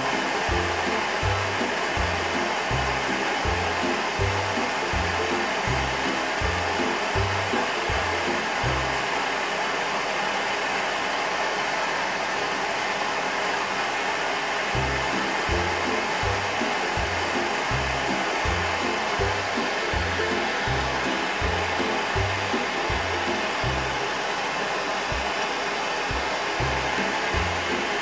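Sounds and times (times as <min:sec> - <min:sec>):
background music with bass: 0:00.0 - 0:09.0, 0:14.8 - 0:24.2, 0:26.1 - 0:28.0.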